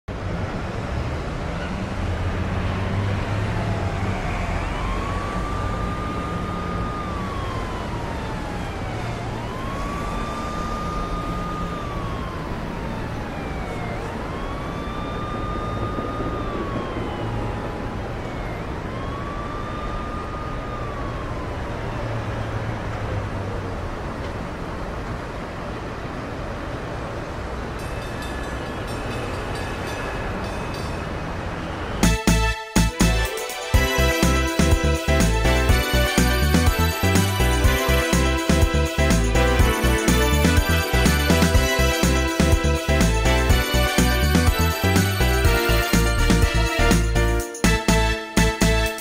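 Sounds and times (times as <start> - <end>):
low rumble of traffic: 0.1 - 32.1
emergency siren wailing: 0.2 - 24.8, 28.2 - 49.0.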